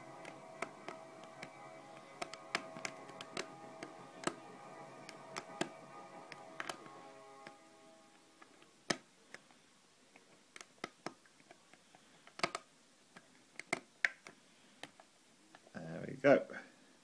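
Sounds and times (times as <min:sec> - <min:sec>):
lock pick clicking on pins: 0:12.2 - 0:12.7.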